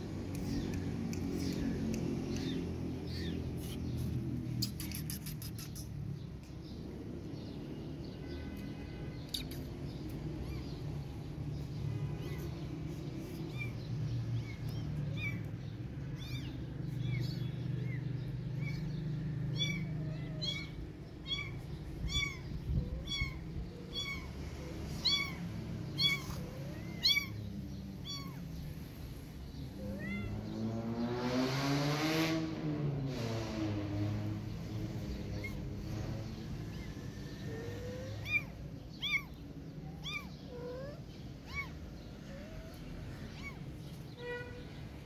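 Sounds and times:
kittens meowing: 0.3 - 4.0, 9.4 - 11.4, 12.1 - 30.6, 35.2 - 44.8.

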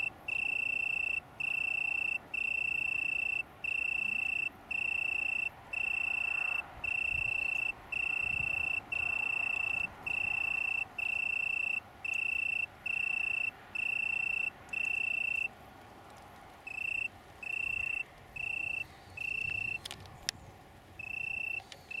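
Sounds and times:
tree cricket singing: 0.0 - 15.5, 16.7 - 22.0.

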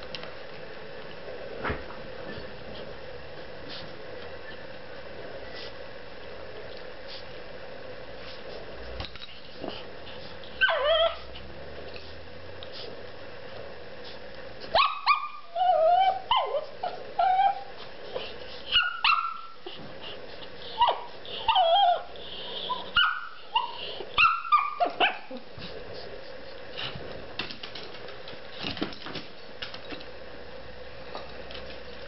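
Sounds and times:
dog yipping and barking: 10.6 - 11.3, 14.7 - 17.8, 18.7 - 19.8, 20.7 - 25.4.

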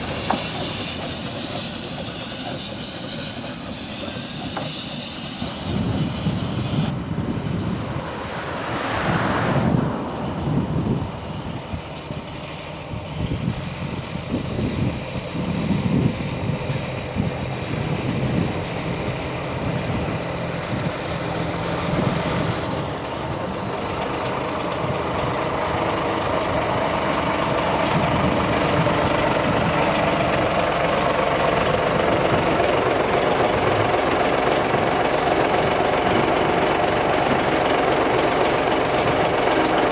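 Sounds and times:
steam hiss: 0.0 - 6.9
diesel locomotive engine approaching: 0.0 - 39.9.

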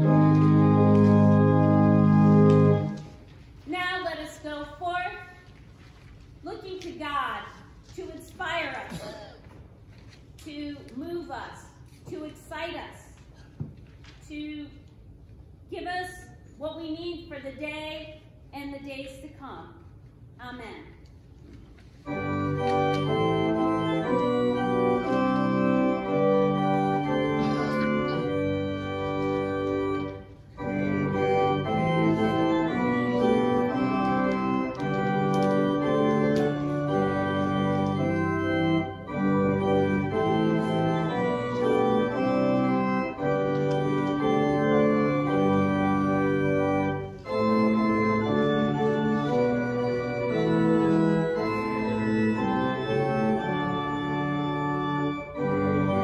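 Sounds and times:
church organ chords: 0.0 - 3.3, 22.0 - 56.0.

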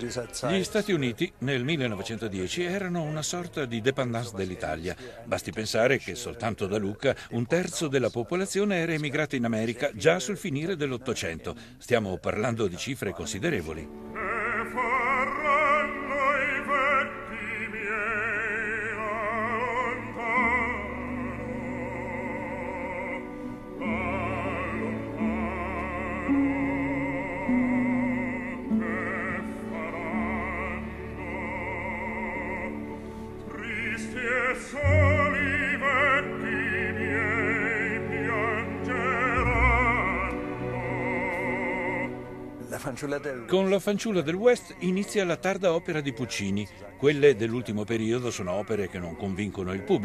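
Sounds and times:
orchestral accompaniment: 13.7 - 43.5
operatic solo singing: 13.9 - 42.7.

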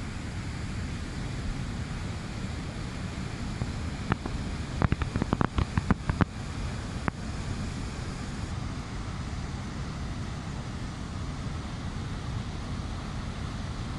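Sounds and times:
sharp clicks and knocks: 4.1 - 6.3.

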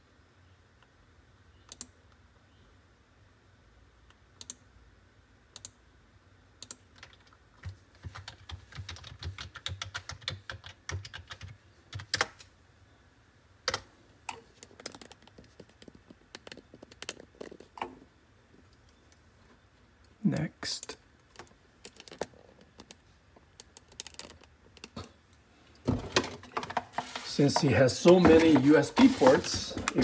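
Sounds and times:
keyboard typing: 6.6 - 12.4, 14.6 - 17.7.

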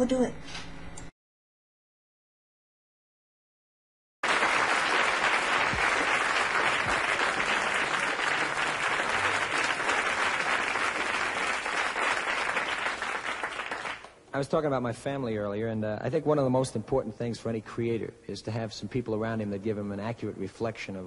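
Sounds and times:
audience applauding: 4.2 - 14.2.

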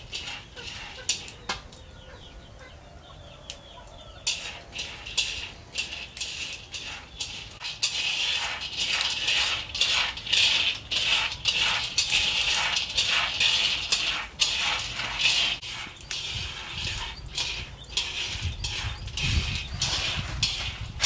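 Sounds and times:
dry peanut shells rustling: 0.0 - 1.5, 4.2 - 21.0.

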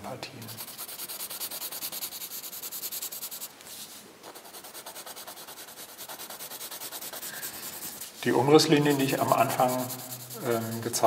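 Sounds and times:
pencil scratching on paper: 0.4 - 3.5, 4.2 - 11.0.

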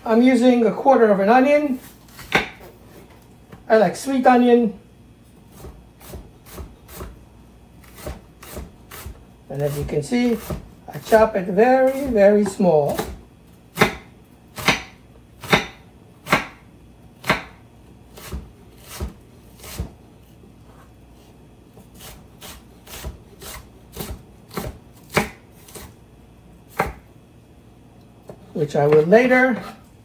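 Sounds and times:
knife chopping on wooden board: 2.2 - 2.7, 5.5 - 7.2, 7.8 - 16.6, 17.2 - 20.0, 21.9 - 25.9, 26.7 - 27.1.

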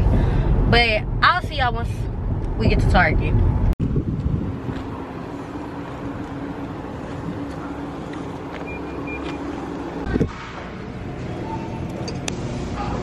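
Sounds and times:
vehicle engine running: 0.0 - 13.0
indoor store ambience: 4.9 - 13.0
short high beeps: 8.6 - 9.5.

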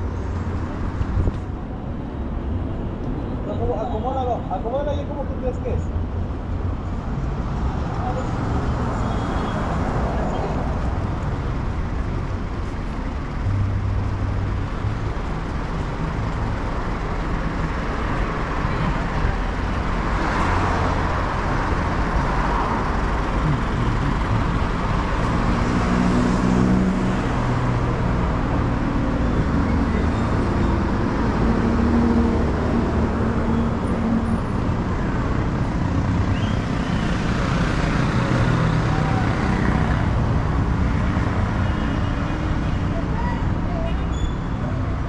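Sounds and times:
rumble of passing vehicles: 0.0 - 45.0
engine hum: 6.4 - 41.4.

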